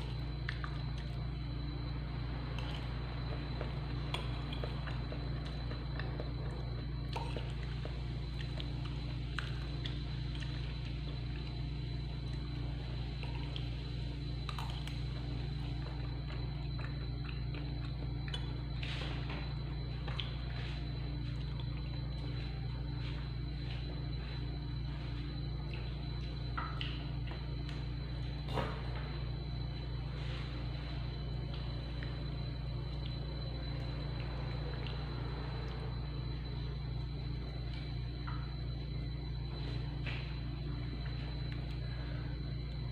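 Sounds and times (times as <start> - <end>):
steady low hum: 0.0 - 42.9
wet chewing: 2.6 - 11.6, 14.4 - 18.5.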